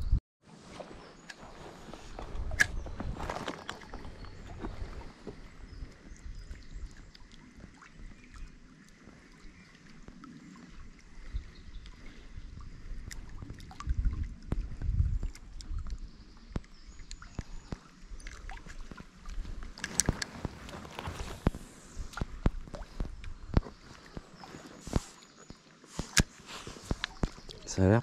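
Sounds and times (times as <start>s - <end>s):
rustle of movement: 0.5s - 6.6s, 17.4s - 28.0s
wind gusting on microphone: 12.4s - 15.9s
fishing tackle clicks: 19.8s - 20.3s.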